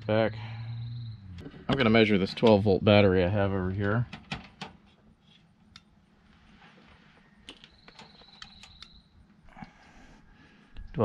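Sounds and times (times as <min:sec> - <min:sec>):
faint high steady tone: 0:00.0 - 0:03.0.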